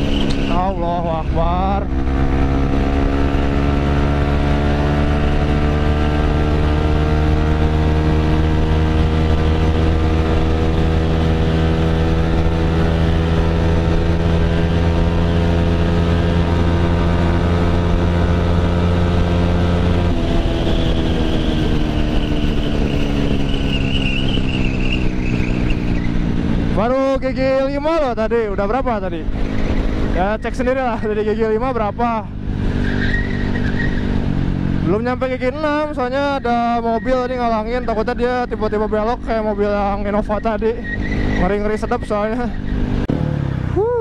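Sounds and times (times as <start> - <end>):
wind noise: 0.0 - 30.5
motorcycle engine revving: 0.0 - 44.0.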